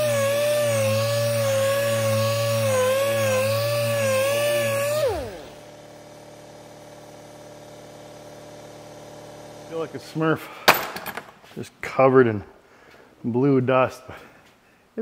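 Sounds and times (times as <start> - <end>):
power sander whining: 0.0 - 7.7.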